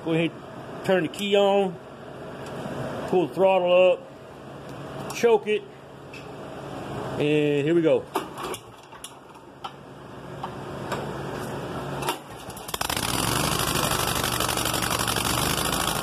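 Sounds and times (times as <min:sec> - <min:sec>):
mower engine starting and running: 0:12.0 - 0:16.0.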